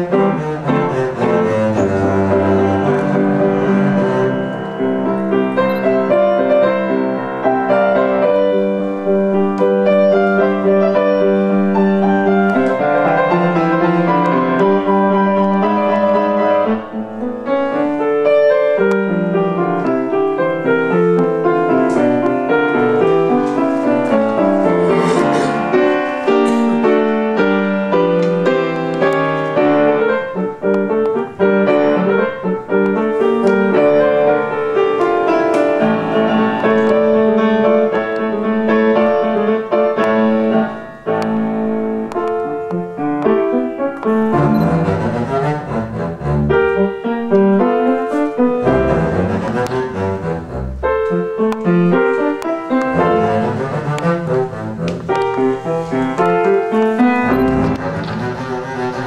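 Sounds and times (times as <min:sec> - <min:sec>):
double bass: 0:00.0 - 0:06.3, 0:19.4 - 0:27.4, 0:44.0 - 0:59.0
piano: 0:00.0 - 0:59.0.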